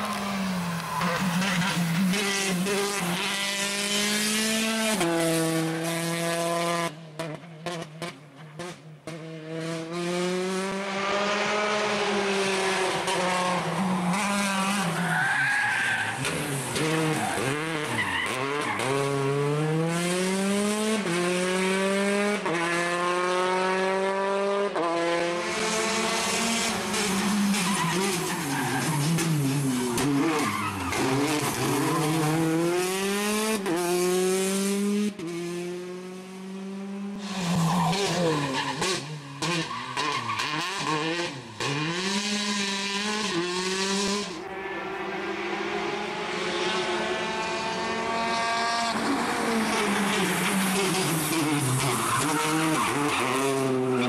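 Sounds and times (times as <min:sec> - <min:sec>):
rally car engine revving hard: 0:01.1 - 0:15.0, 0:16.2 - 0:44.4, 0:46.3 - 0:54.0.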